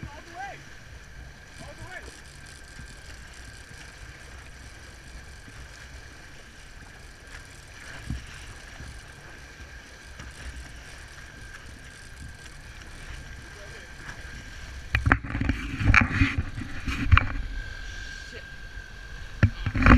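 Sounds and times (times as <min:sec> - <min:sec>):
outboard motor running: 0:00.0 - 0:19.9
water washing along hull: 0:00.0 - 0:19.9
wind on microphone: 0:14.0 - 0:18.2.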